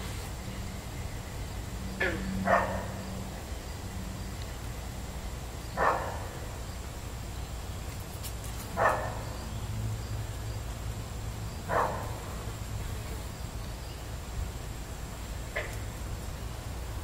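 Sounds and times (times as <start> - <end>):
dog barking: 2.4 - 3.0, 5.8 - 6.3, 8.8 - 9.3, 11.7 - 12.2.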